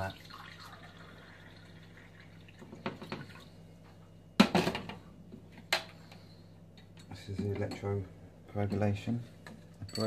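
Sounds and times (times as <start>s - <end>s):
water pouring into glass: 0.0s - 3.5s.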